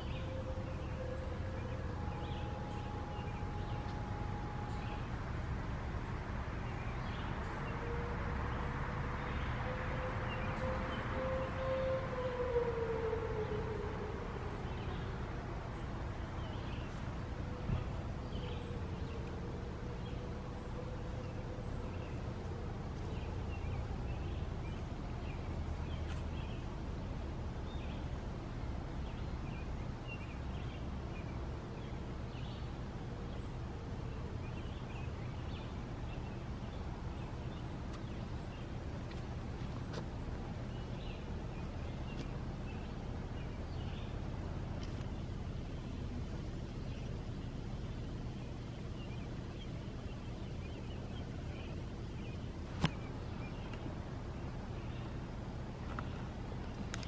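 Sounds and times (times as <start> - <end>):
warning siren: 0.0 - 24.6
low outdoor rumble: 0.0 - 57.0.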